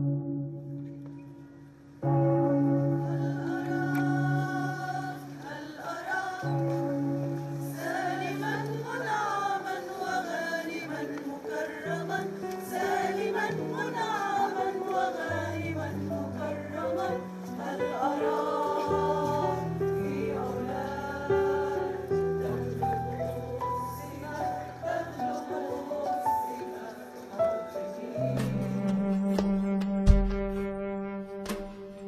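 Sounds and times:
held low chords: 0.0 - 4.6, 28.3 - 32.0
person singing slow melody: 2.2 - 32.0.

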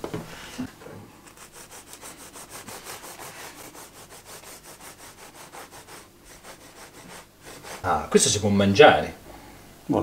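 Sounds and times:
knife sawing through cake: 1.4 - 8.0.

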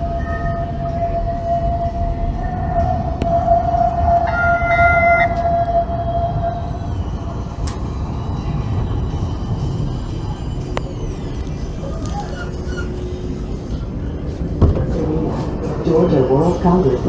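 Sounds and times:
two-tone signal: 0.0 - 7.0
tram rumble: 0.0 - 17.0
tram whine: 0.0 - 17.0.

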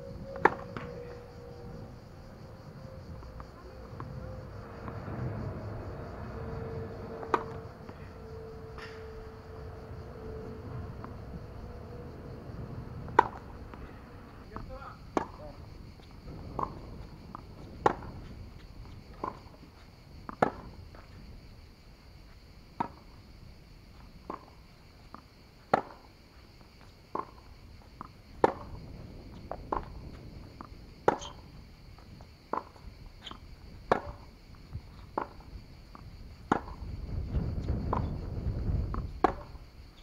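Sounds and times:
racket striking tennis ball: 0.4 - 0.9, 6.2 - 12.3, 13.0 - 18.2, 20.3 - 20.7, 25.7 - 26.1, 28.4 - 28.8, 31.0 - 31.4, 32.5 - 34.3, 35.0 - 35.4, 36.4 - 36.8, 39.2 - 39.6.

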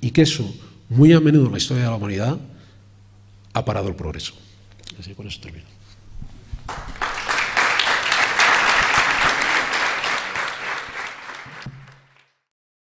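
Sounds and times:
audience applauding: 6.7 - 12.4.

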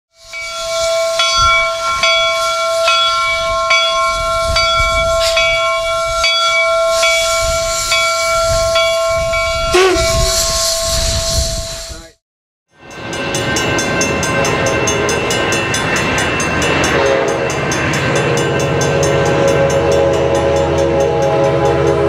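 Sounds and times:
steam locomotive whistle: 9.6 - 12.0, 16.7 - 22.0
hissing steam: 9.8 - 12.2.

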